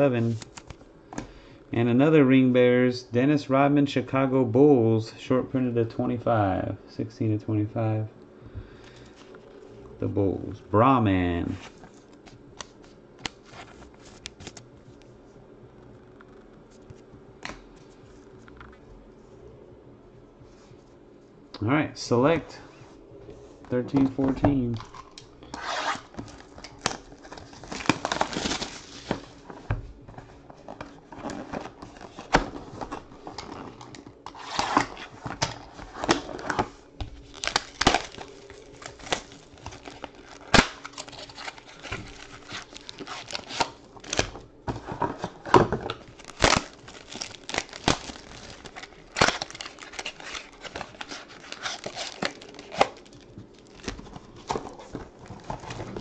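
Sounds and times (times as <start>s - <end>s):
plastic wrap crinkling and tearing: 24.6s - 29.6s, 30.3s - 56.0s.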